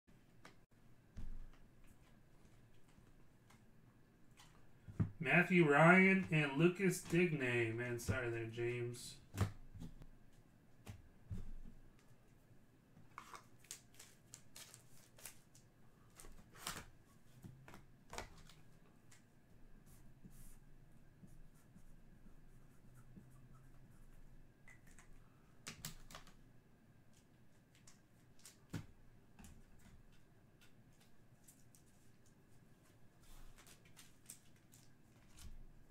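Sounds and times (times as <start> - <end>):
trading cards and foil packs rustling: 13.1 - 16.8.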